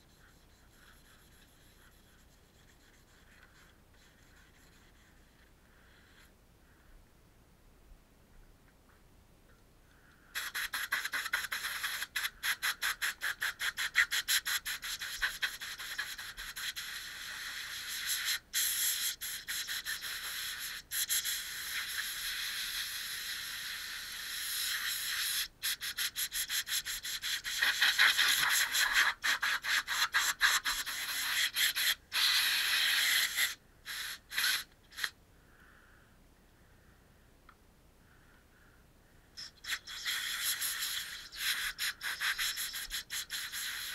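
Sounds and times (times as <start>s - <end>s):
spray paint can hissing: 10.4s - 35.2s, 39.4s - 43.9s.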